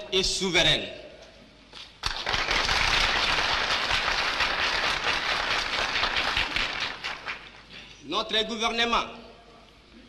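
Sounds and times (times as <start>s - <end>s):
audience applause: 2.0s - 7.7s
speech: 8.1s - 10.0s.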